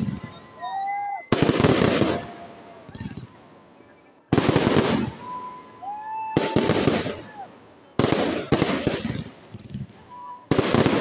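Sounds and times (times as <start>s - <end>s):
high whistle: 0.0s - 1.5s, 5.0s - 6.7s, 10.1s - 10.5s
fireworks bursting: 0.0s - 11.0s
fireworks crackling: 0.0s - 11.0s.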